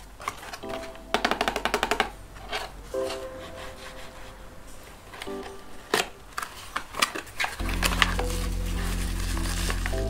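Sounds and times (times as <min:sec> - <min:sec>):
cardboard flap crackling open: 0:06.0 - 0:10.0
cardboard rubbing and scraping: 0:06.4 - 0:10.0.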